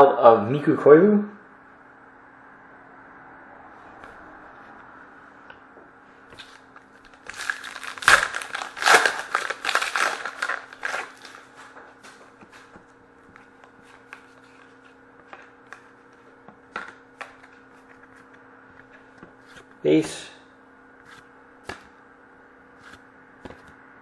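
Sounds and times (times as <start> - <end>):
cards being handled: 6.3 - 20.2, 21.0 - 22.0, 22.8 - 23.8
wrapper tearing and crinkling: 6.4 - 11.5.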